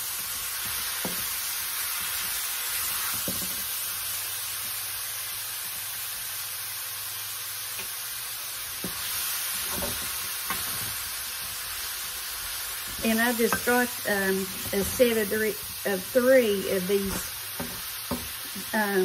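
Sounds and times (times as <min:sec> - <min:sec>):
food sizzling in a pan: 0:00.0 - 0:19.0
wooden spatula scraping a pan: 0:12.8 - 0:18.7.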